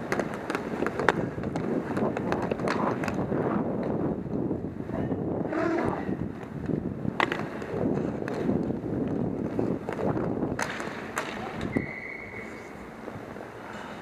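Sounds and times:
hockey sticks and puck clacking: 0:00.0 - 0:04.4, 0:06.4 - 0:12.8
skate wheels rumbling on rink: 0:00.0 - 0:14.0.

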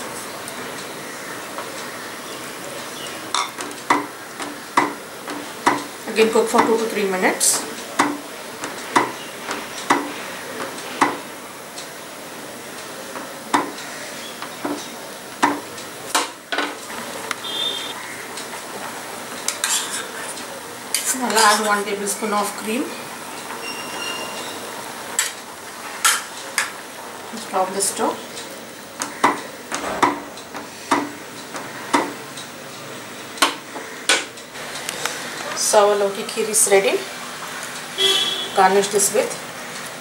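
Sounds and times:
spoon knocking against pan: 0:03.3 - 0:05.9, 0:13.5 - 0:13.8, 0:30.0 - 0:32.2
spoon scraping pan: 0:19.5 - 0:21.8.

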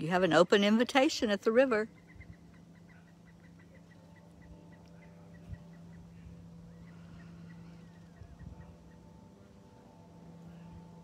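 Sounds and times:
steady low hum: 0:00.0 - 0:11.0
bird chirping: 0:01.7 - 0:09.6.

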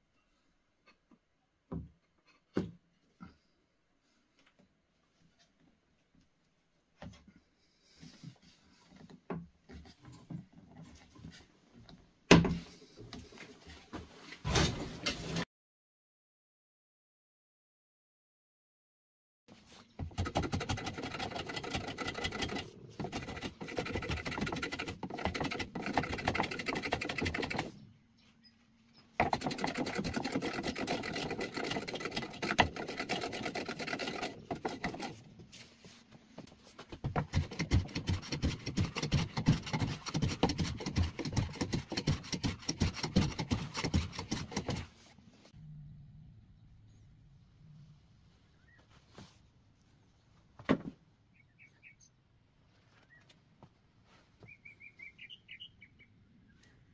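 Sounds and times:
sanding wood: 0:20.0 - 0:27.7, 0:29.2 - 0:35.2, 0:37.2 - 0:45.0.

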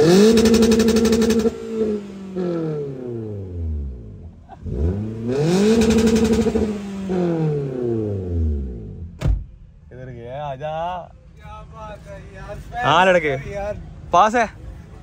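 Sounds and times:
car engine revving: 0:00.0 - 0:09.6.

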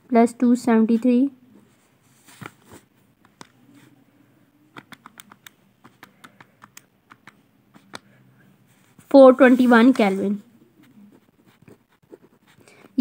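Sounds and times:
calculator keys clicking: 0:04.8 - 0:08.0.

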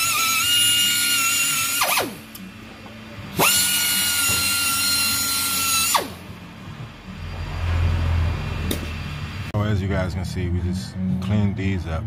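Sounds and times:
power tool whining: 0:00.0 - 0:06.8.

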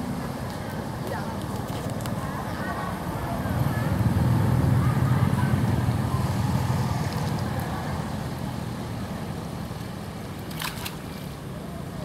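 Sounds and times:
motor vehicle passing rumble: 0:02.3 - 0:09.6.

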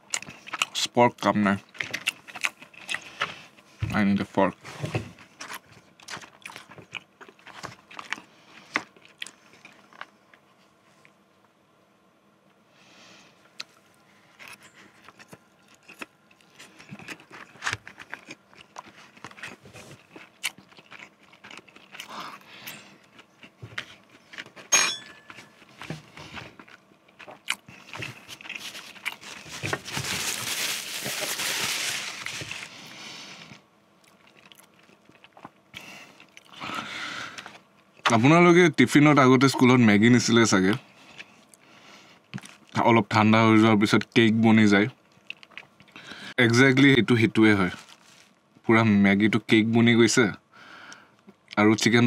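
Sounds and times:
close chewing and biting: 0:00.0 - 0:03.8, 0:04.4 - 0:11.2, 0:13.5 - 0:38.2, 0:45.1 - 0:46.1.

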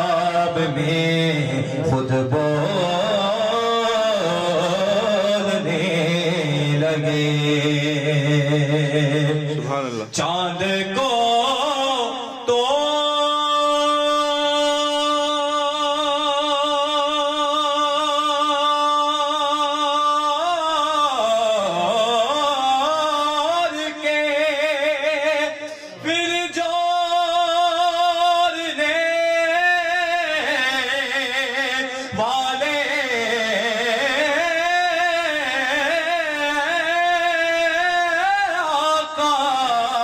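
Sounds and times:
man singing devotional song: 0:00.0 - 0:40.0
singer breath: 0:25.6 - 0:26.1, 0:31.9 - 0:32.2.

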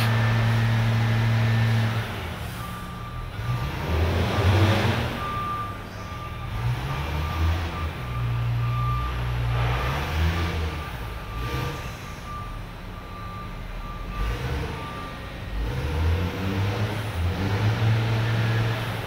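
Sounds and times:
heavy machinery drone: 0:00.0 - 0:12.5.

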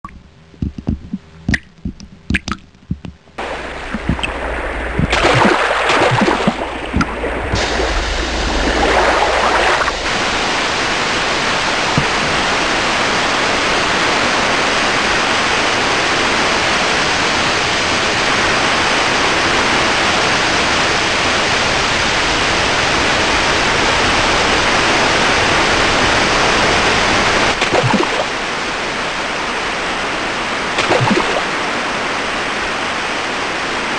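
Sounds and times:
water drips: 0:00.0 - 0:10.3
low rumble: 0:00.0 - 0:12.6
white water rushing over rocks: 0:03.4 - 0:22.0.

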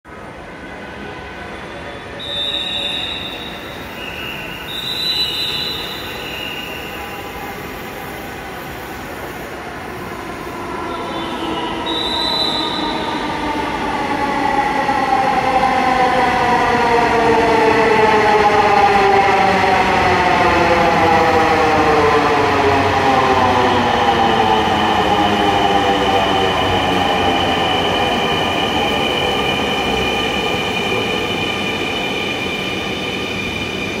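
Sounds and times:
train whine over rumble: 0:00.1 - 0:34.0
high squeal: 0:02.1 - 0:09.1, 0:10.9 - 0:13.3.

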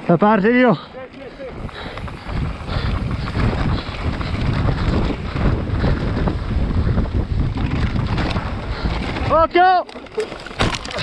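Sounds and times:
mountain bike rumble on trail: 0:00.0 - 0:11.0
wind buffeting microphone: 0:01.2 - 0:09.6
bike knocks and rattles: 0:01.7 - 0:11.0.

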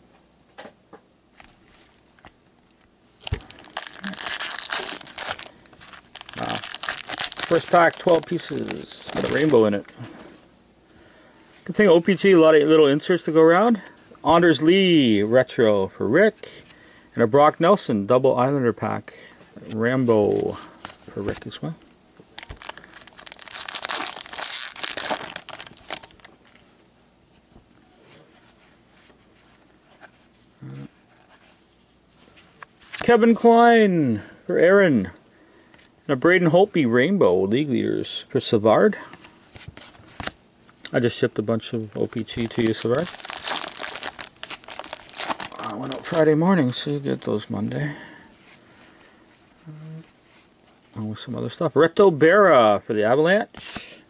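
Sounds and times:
wrapper crinkling and tearing: 0:02.7 - 0:09.6, 0:22.3 - 0:26.3, 0:41.8 - 0:46.3.

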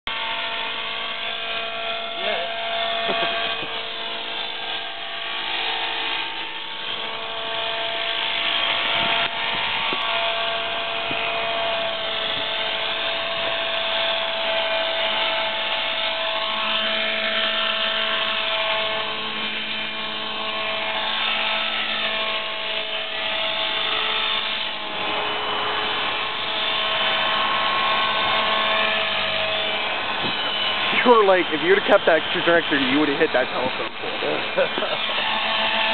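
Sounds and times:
rc helicopter motor whine: 0:00.1 - 0:35.9
rotor buzz: 0:00.1 - 0:35.9.

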